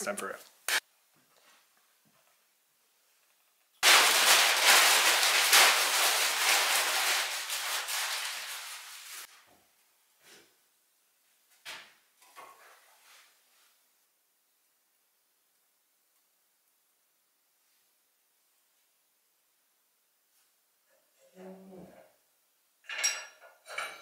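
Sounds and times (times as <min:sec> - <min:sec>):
paper crumpling: 0:03.8 - 0:09.4.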